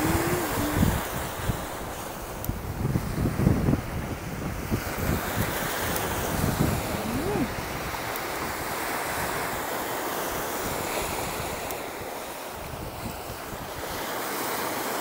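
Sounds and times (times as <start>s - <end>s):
wind buffeting microphone: 0.0s - 9.6s
sea waves against rocks: 0.0s - 15.0s.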